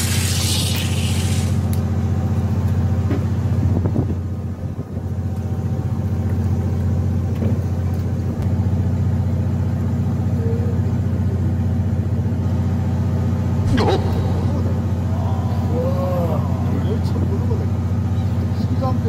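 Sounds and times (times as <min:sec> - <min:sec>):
boat engine droning: 0:00.0 - 0:19.0.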